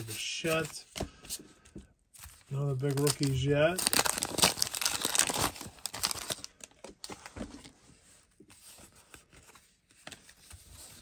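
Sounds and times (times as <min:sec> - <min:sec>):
cards rustling: 0:00.0 - 0:07.7
paper wrapper tearing: 0:02.7 - 0:06.5.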